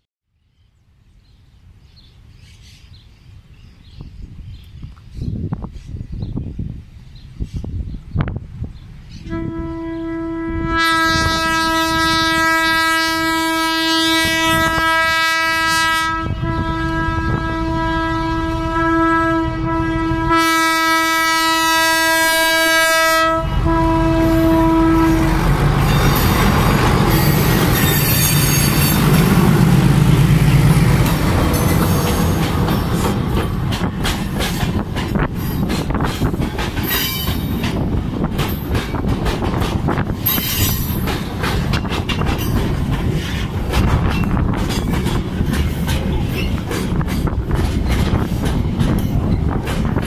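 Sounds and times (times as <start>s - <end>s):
locomotive horn blast: 9.2s - 33.2s
train wheels rolling: 23.5s - 50.0s.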